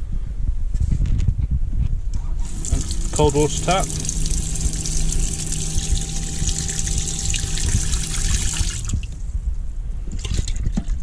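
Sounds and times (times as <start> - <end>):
water pump humming: 2.4 - 9.2
tap running into metal sink: 2.5 - 9.0.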